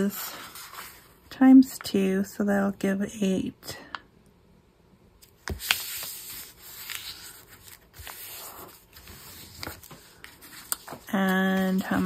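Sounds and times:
hands rubbing paper: 0:05.5 - 0:12.0.

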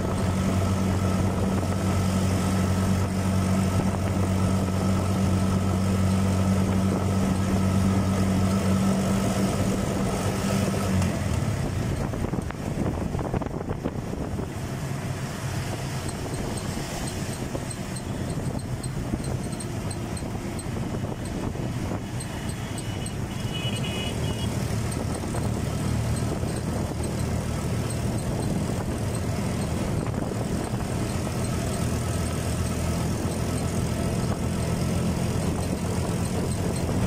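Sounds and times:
vehicle engine drone: 0:00.0 - 0:37.0
faint regular ticking: 0:15.9 - 0:37.0.

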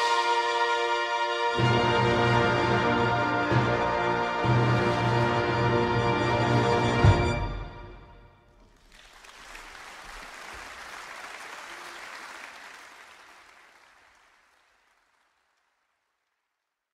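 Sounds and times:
brass band chord: 0:00.0 - 0:08.3
audience applauding: 0:08.6 - 0:16.7.

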